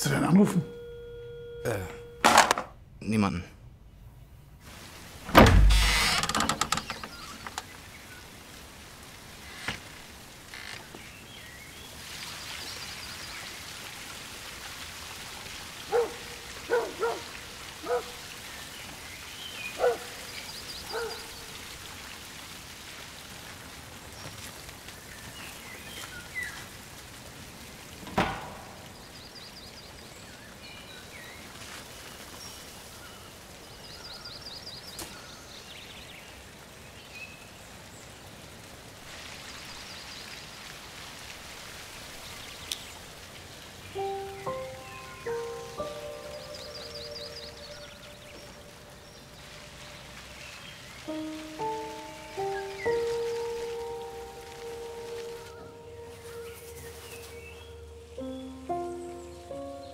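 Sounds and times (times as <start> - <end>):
small birds twittering: 5.4 - 8.6, 15.7 - 21.9, 28.2 - 38.2, 43.8 - 59.9.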